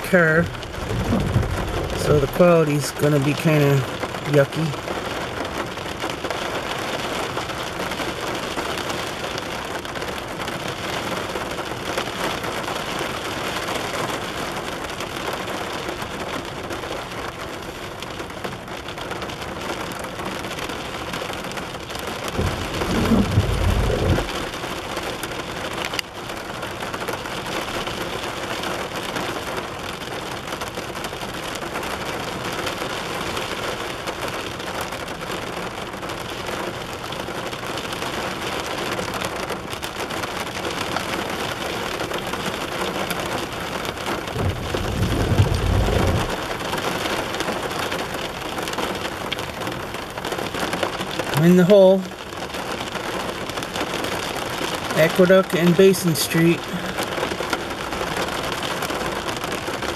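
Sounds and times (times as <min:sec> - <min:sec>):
low rumble: 0:00.0 - 0:02.4, 0:22.4 - 0:24.6, 0:44.3 - 0:46.6
rain pattering on car roof: 0:00.0 - 0:59.9.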